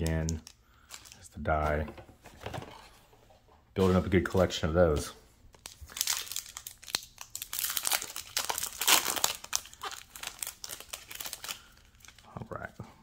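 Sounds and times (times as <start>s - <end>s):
wrapper crinkling and tearing: 5.5s - 12.3s.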